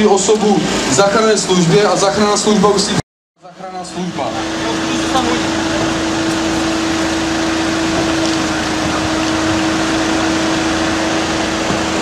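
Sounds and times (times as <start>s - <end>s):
engine droning: 0.0s - 12.0s.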